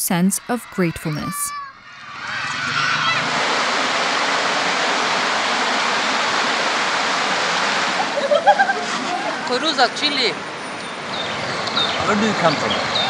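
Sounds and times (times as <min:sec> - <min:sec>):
voices: 0:00.0 - 0:01.6
river water rushing over rocks: 0:03.3 - 0:08.2.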